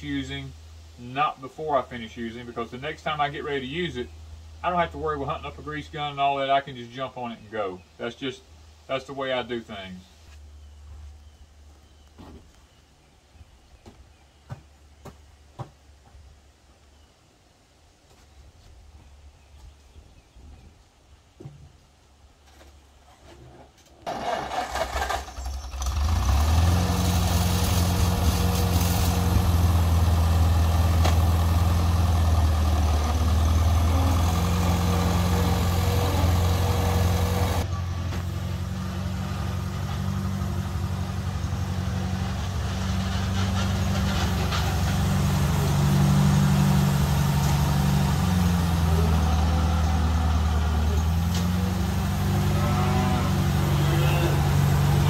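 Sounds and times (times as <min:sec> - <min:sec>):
tractor engine cranking and running: 0:23.9 - 0:52.5, 0:54.3 - 0:55.0.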